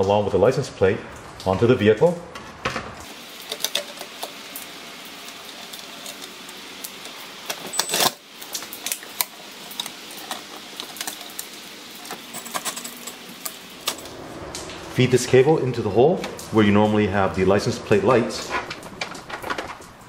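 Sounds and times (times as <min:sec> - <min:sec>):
metallic rattles of license plate: 0:18.4 - 0:20.0.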